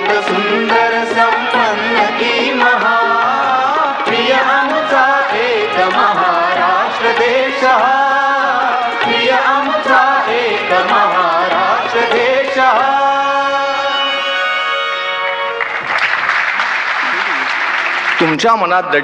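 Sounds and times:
tabla: 0:00.0 - 0:14.4
harmonium: 0:00.0 - 0:16.0.

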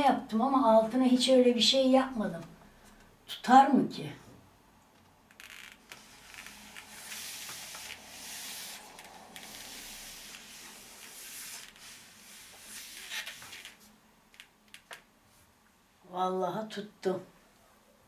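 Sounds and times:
palms rubbing on picture frame: 0:05.5 - 0:13.9.

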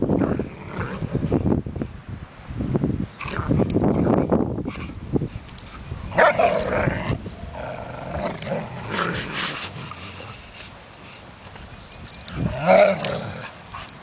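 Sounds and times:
dogs growling: 0:06.2 - 0:10.7, 0:12.3 - 0:13.9.

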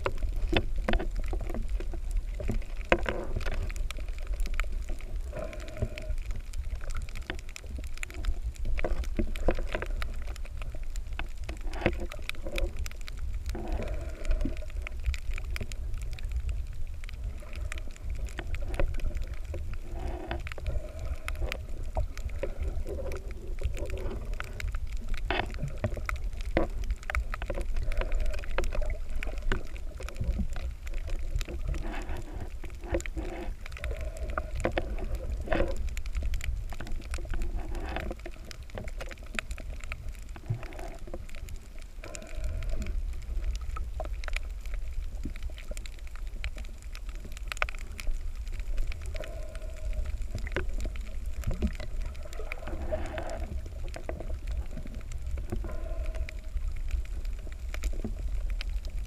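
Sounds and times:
muffled underwater rumble: 0:00.0 - 0:59.0
underwater clicks and crackles: 0:00.0 - 0:59.0.

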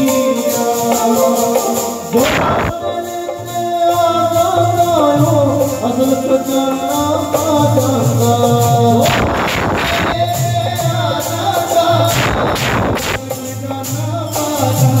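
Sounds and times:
harmonium: 0:00.0 - 0:15.0
jingling percussion: 0:00.0 - 0:15.0
person singing: 0:00.0 - 0:15.0
loud rushing burst: 0:02.2 - 0:02.8, 0:09.0 - 0:10.4, 0:12.1 - 0:13.3
drum beat: 0:08.7 - 0:14.1.

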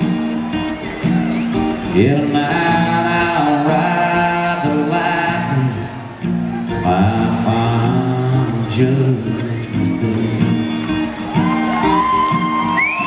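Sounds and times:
acoustic guitar chords: 0:00.0 - 0:13.0
man singing: 0:01.8 - 0:10.8.

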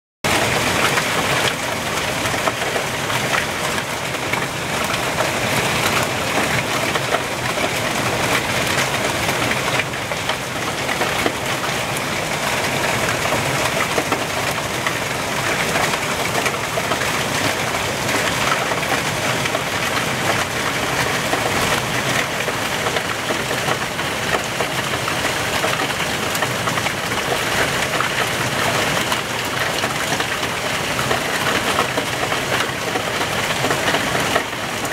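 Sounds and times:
hailstones striking: 0:00.3 - 0:34.9
heavy rain and hail: 0:00.3 - 0:34.9.

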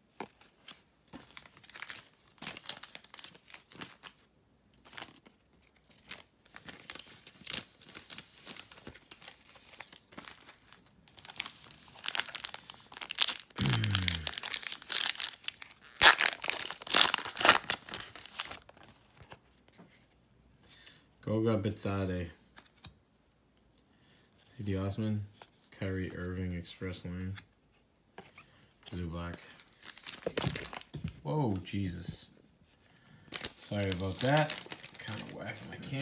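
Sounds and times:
plastic wrapper crinkling and tearing: 0:01.2 - 0:19.3, 0:29.3 - 0:31.0, 0:33.3 - 0:36.0.

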